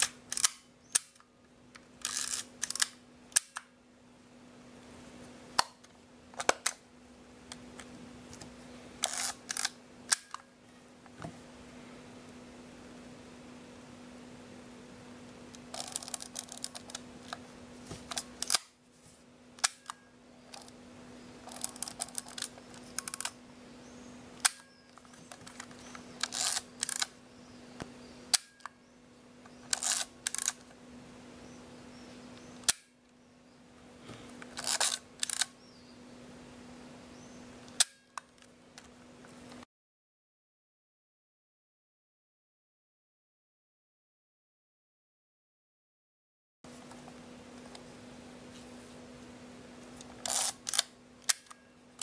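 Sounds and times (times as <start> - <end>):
film advance ratcheting clicks: 0.0 - 1.2, 2.0 - 3.7, 9.0 - 10.4, 15.6 - 17.0, 18.1 - 18.7, 21.4 - 23.4, 25.3 - 27.2, 29.7 - 30.6, 34.4 - 35.5, 50.1 - 51.6.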